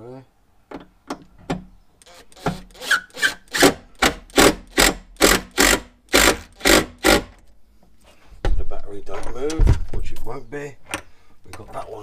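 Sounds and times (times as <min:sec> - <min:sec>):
hand ratchet strokes: 0:02.0 - 0:07.3.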